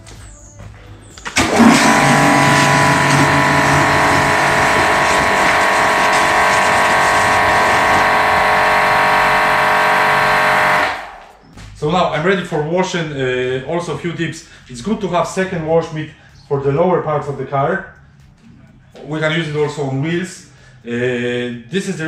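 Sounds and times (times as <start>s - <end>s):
pressure washer whine: 1.2s - 11.4s.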